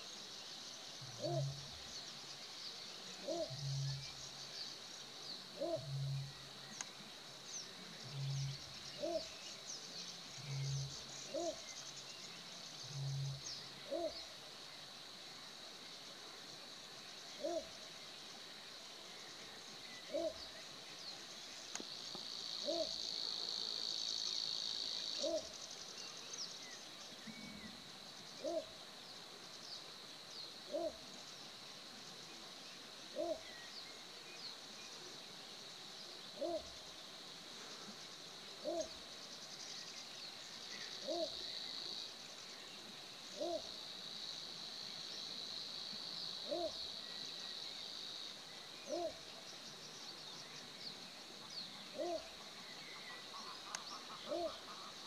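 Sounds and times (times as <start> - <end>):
little bittern barking call: 3.2 - 3.6, 22.6 - 23.0, 25.2 - 25.5, 28.4 - 28.7, 33.2 - 33.4, 36.4 - 36.7, 38.6 - 39.0, 43.4 - 43.7, 46.5 - 46.8, 48.9 - 49.2, 52.0 - 52.3, 54.0 - 54.8.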